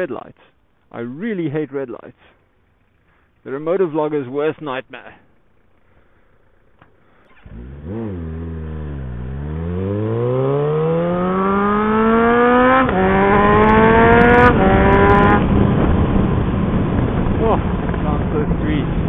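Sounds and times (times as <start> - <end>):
loud motorcycle engine accelerating: 7.4 - 19.0.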